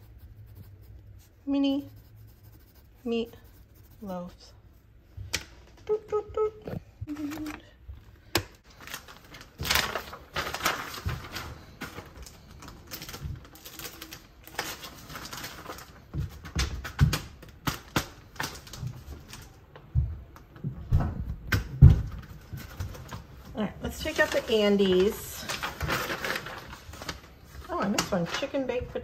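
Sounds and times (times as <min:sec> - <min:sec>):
paper pages rustling: 0:08.6 - 0:16.1, 0:24.0 - 0:28.6
plastic sheets crinkling: 0:08.6 - 0:19.6, 0:23.9 - 0:29.0.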